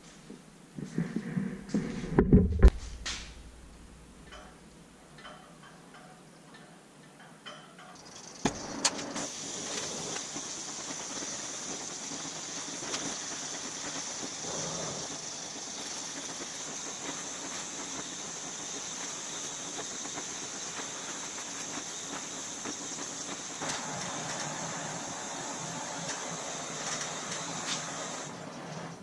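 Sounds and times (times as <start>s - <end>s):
welding torch flame hissing: 8.0s - 29.0s.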